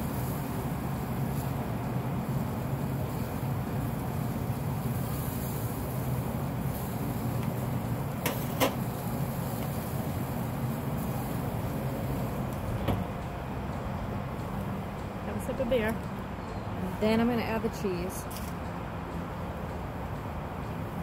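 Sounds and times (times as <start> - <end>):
grill lid shutting: 8.2 - 9.8
steady low rumble: 8.8 - 18.1.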